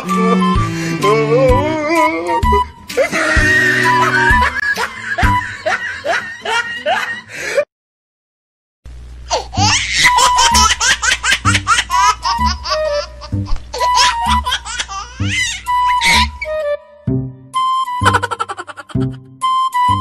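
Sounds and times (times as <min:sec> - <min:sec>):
background music with steady beat: 0:00.0 - 0:06.5, 0:10.5 - 0:20.0
child-like giggling: 0:09.3 - 0:16.4, 0:18.0 - 0:19.3.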